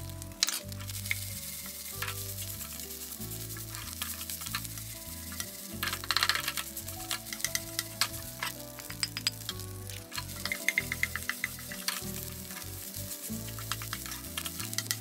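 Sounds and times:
fried rice sizzling in a pan: 0.0 - 15.0
utensil scraping a pan: 0.4 - 15.0
metallic clinks: 3.8 - 15.0.

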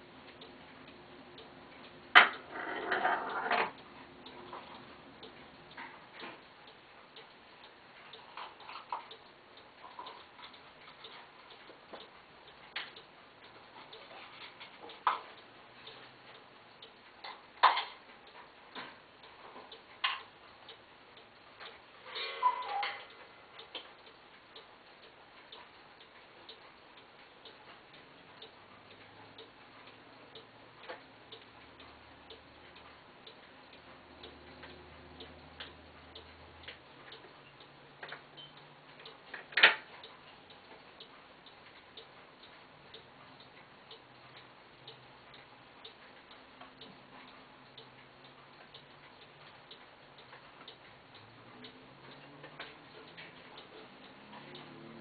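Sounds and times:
steel balls clicking on wooden tracks: 2.1 - 3.8.

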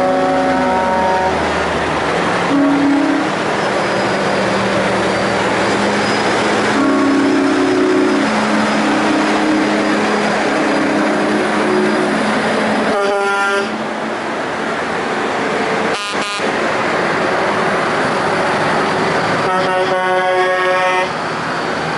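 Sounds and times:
truck air horn blast: 0.0 - 1.4, 2.5 - 3.3, 6.7 - 8.2, 12.9 - 13.8, 15.9 - 16.5, 19.4 - 21.2
truck engines driving past: 0.0 - 21.9
low steady horn tones: 2.5 - 3.3, 6.7 - 8.3, 12.9 - 13.8, 15.9 - 16.5, 19.4 - 21.1.

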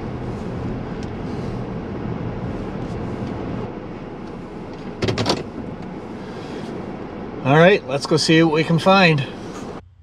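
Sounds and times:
car engine and tyres rumbling: 0.0 - 10.0.

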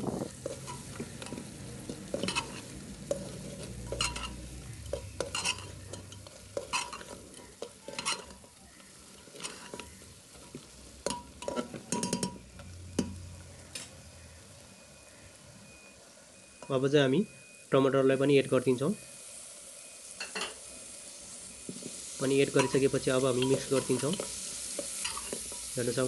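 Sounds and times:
metal ladle scraping pot: 0.0 - 8.6, 9.2 - 12.4, 22.6 - 25.7
meat sizzling: 0.0 - 26.0.

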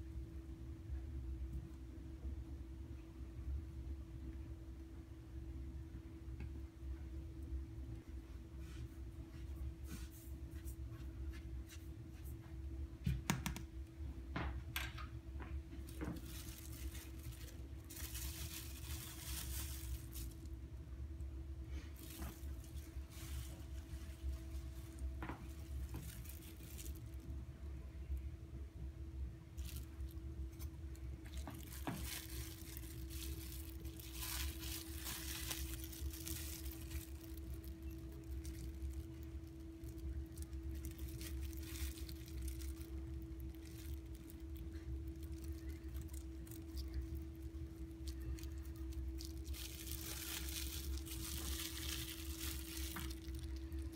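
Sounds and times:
low hum: 13.8 - 53.9
plastic glove crinkling: 15.2 - 28.2, 29.1 - 53.9
fingers rustling paper towels: 15.8 - 20.7, 21.7 - 27.4, 29.5 - 53.9.

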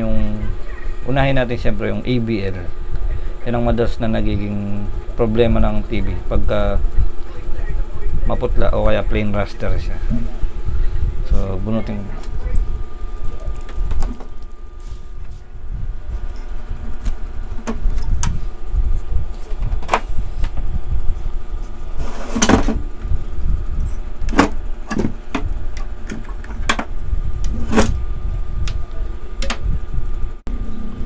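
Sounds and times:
motorcycle engine rumbling: 9.8 - 31.0.

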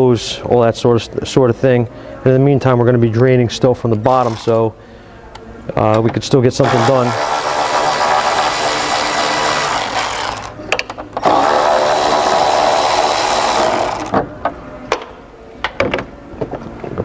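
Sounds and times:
electric ratchet whirring: 4.2 - 4.6, 6.6 - 10.6, 11.2 - 14.2.

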